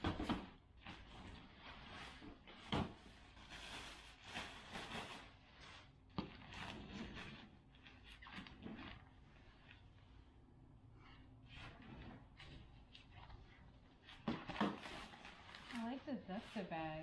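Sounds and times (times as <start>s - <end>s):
fabric and plastic rustling: 0.0s - 17.0s.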